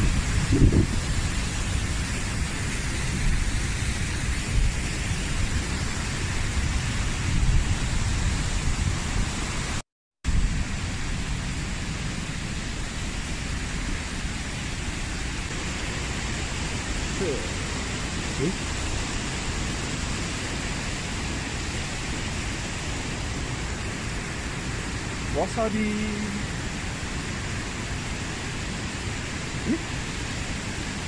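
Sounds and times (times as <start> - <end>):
waterfall rushing: 10.8 - 31.0.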